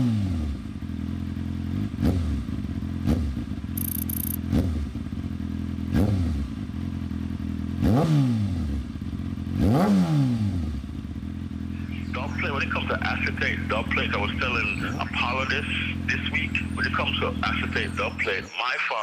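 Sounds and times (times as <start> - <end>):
motorcycle engine idling: 0.4 - 7.8, 10.8 - 18.2.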